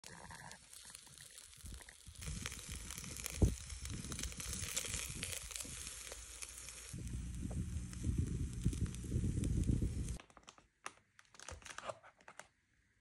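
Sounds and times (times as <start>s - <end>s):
meat sizzling on grill: 0.0s - 10.2s
low rumble: 7.0s - 10.2s.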